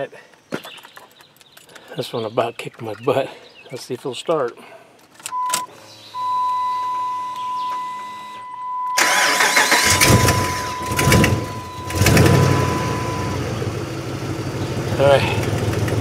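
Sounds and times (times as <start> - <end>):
ignition clicks: 5.2 - 12.9
high-pitched tone: 6.2 - 13.6
engine running and revving: 9.6 - 16.0.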